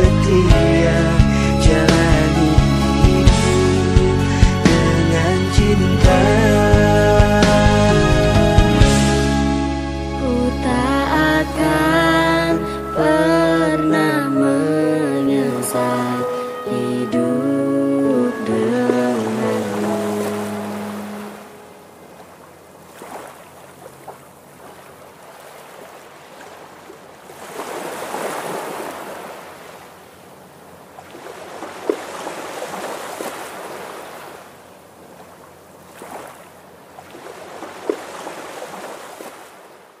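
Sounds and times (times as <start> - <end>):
waves washing over rocks: 18.1 - 30.1, 30.8 - 40.0
sharp splashes: 18.8 - 30.0, 30.9 - 40.0.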